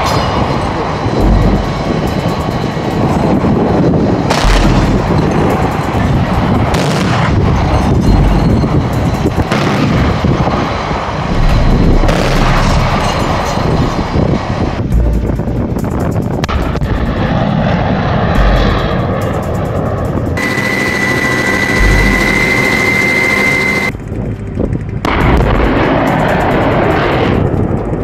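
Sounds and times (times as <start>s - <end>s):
continuous rumble: 0.0s - 28.0s
heavy booms of gunfire: 4.3s - 7.6s, 9.4s - 10.5s, 11.2s - 14.8s.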